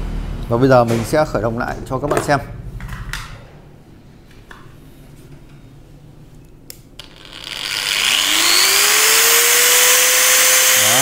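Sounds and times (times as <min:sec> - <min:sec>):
angle grinder motor whine: 0:07.0 - 0:11.0.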